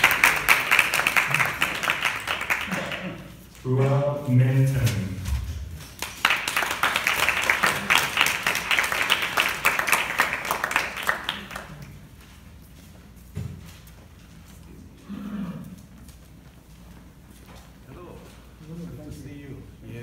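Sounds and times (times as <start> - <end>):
audience applauding: 0.0 - 4.0, 5.9 - 12.0.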